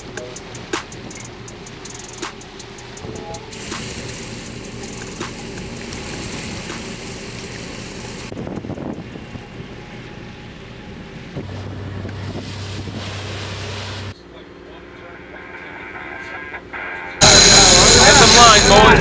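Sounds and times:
sea water washing: 0:00.0 - 0:14.2
boat engine running: 0:00.0 - 0:19.0
wind buffeting microphone: 0:04.7 - 0:10.1, 0:11.2 - 0:14.1.

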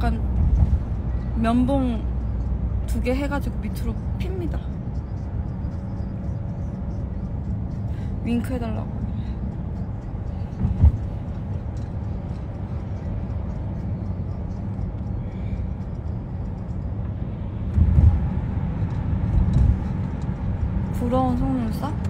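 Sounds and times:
road rumble inside car: 0:00.0 - 0:22.0
car thumping over bumps: 0:10.5 - 0:11.4.

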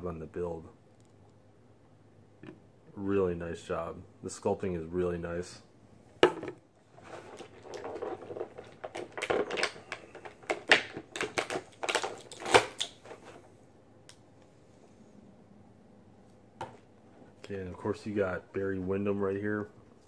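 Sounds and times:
plastic packaging crackling and snapping: 0:07.2 - 0:13.2.

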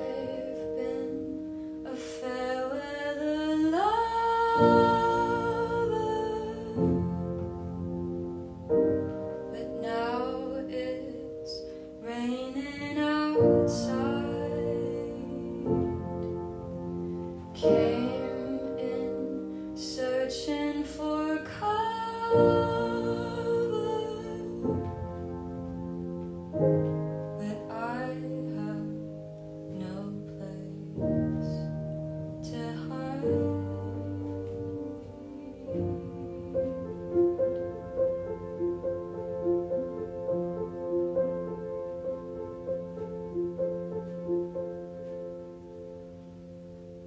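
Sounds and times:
woman singing: 0:00.0 - 0:07.5, 0:09.4 - 0:16.4, 0:17.4 - 0:25.3, 0:27.4 - 0:31.7, 0:32.3 - 0:37.8
piano chords: 0:00.0 - 0:47.0.

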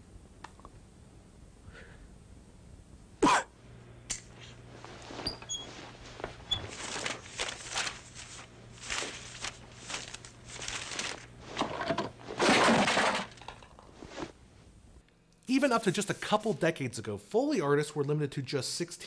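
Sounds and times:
rustling and scuffing: 0:04.4 - 0:12.3, 0:13.9 - 0:14.4.

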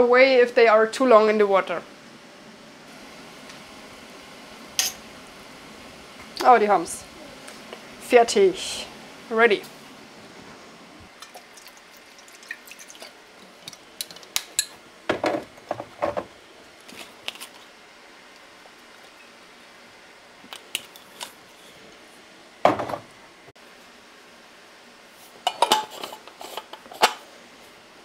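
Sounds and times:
cookware clicks and clinks: 0:25.5 - 0:27.2.

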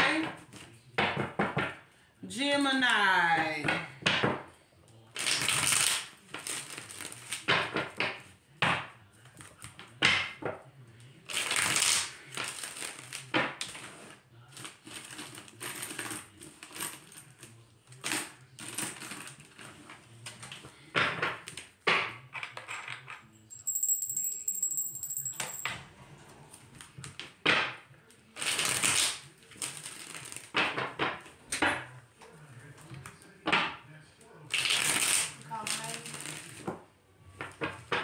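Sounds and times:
cards being shuffled: 0:28.4 - 0:30.6, 0:34.5 - 0:36.8.

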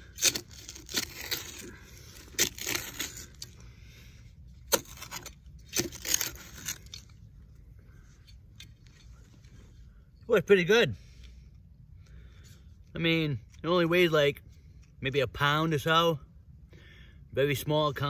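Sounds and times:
shovel digging sandy soil: 0:00.0 - 0:03.6, 0:04.6 - 0:07.2.

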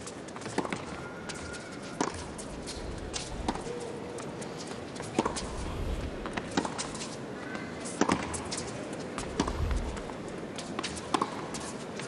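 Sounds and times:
tennis ball bouncing: 0:02.0 - 0:03.7, 0:09.2 - 0:11.4
crowd hum: 0:02.3 - 0:07.0, 0:09.0 - 0:10.5
tennis racket hitting ball: 0:09.2 - 0:10.2.

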